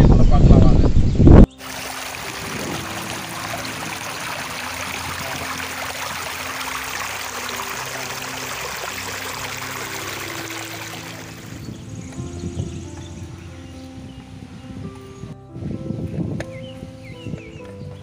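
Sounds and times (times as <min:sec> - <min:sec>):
water running over rock: 0:01.5 - 0:12.2.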